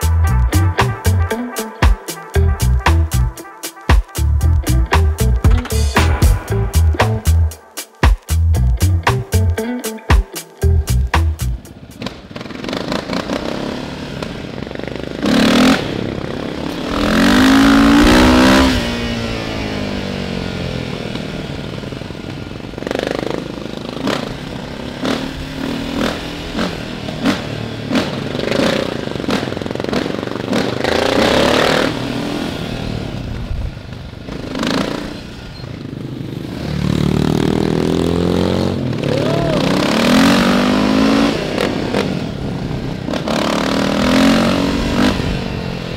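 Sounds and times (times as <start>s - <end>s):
atv engine revving: 0.0s - 1.4s, 10.7s - 45.9s.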